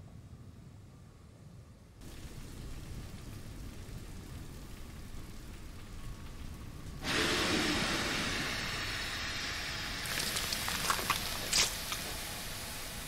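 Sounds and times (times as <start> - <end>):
sharp crackles: 2.0 - 7.0, 10.0 - 12.4
loud rushing steam hiss: 7.0 - 13.0.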